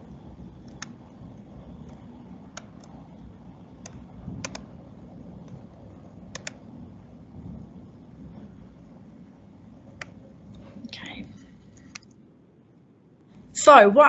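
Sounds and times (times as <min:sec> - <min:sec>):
low steady hum: 0:00.0 - 0:14.0
mouse and keyboard clicks: 0:03.8 - 0:04.6, 0:06.3 - 0:06.6.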